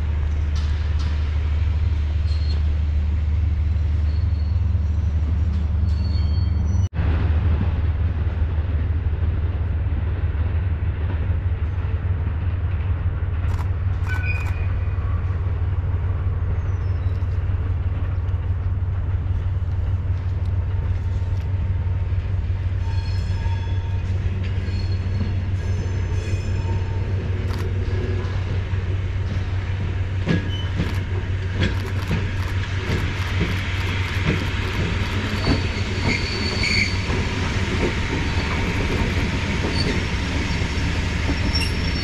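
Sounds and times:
locomotive low rumble: 0.0 - 42.0
faint high squeals: 5.8 - 6.9.

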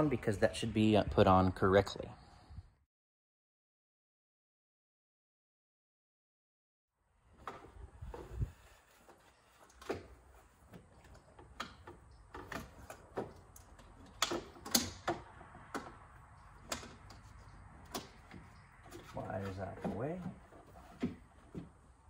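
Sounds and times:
metal heat shield clicks and knocks: 11.0 - 19.0.

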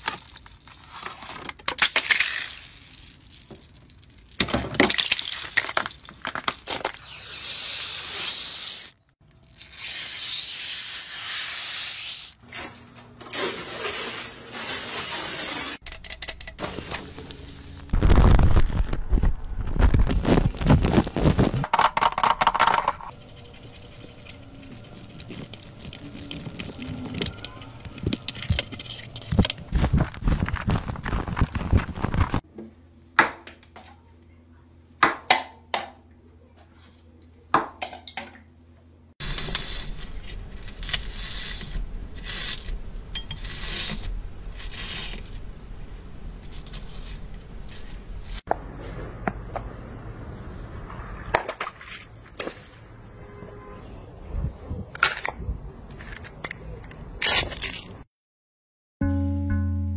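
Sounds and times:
crumbly material crunching: 17.9 - 21.7, 24.6 - 32.4.

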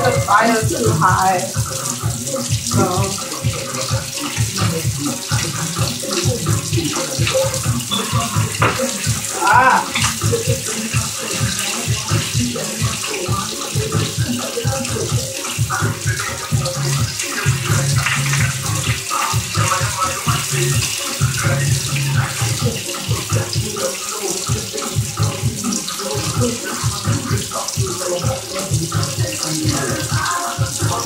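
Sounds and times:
fish sizzling in hot oil: 0.0 - 31.0.

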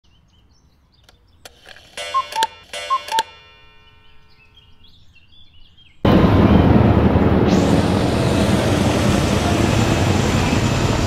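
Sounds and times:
cuckoo clock call: 1.5 - 4.8
loud steady noise: 6.1 - 11.0.

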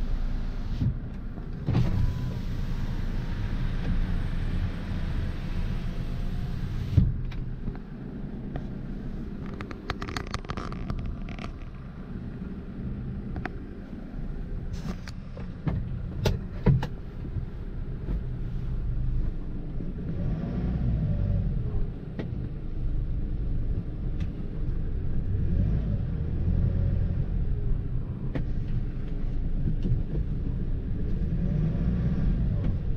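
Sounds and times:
sharp clicks and knocks: 9.4 - 11.8, 14.8 - 17.0.

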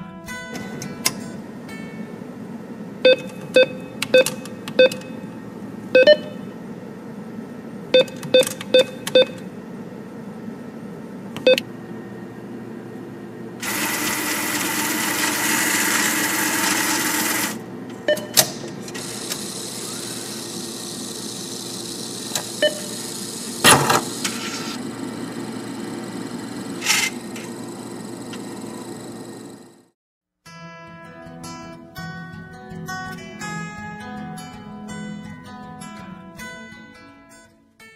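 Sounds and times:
mechanical whir: 13.6 - 17.6, 18.8 - 29.9.

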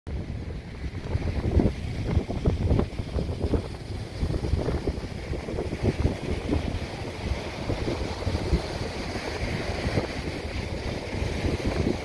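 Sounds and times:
small waves breaking on sand: 0.1 - 12.0
wind buffeting microphone: 0.1 - 12.0.

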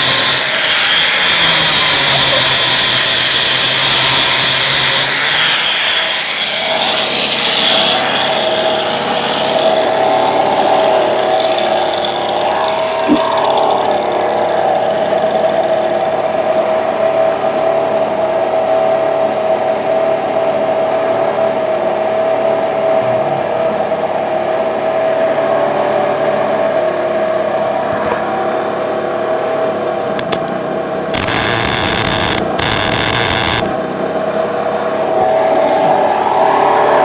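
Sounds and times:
steady machine hum: 6.5 - 37.0
welding crackle: 31.1 - 33.7.

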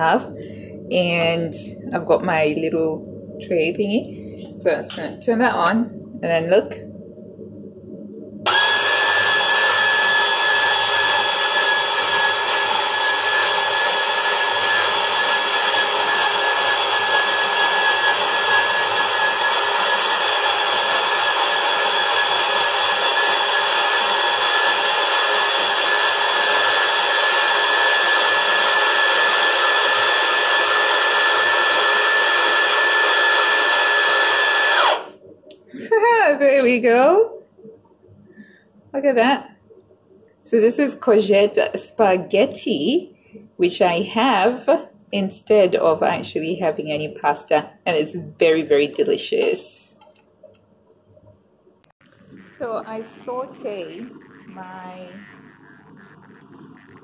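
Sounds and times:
spiralizer motor whining: 8.4 - 35.1, 52.0 - 57.0.

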